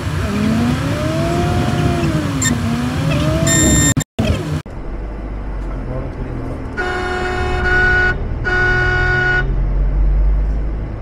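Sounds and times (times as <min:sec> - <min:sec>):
moving vehicle rumble: 0:00.0 - 0:11.0
vehicle horn blasts: 0:06.8 - 0:09.5.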